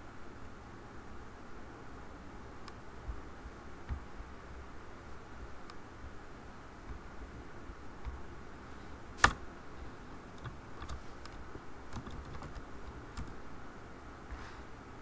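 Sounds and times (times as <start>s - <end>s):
computer keyboard typing: 10.3s - 13.4s.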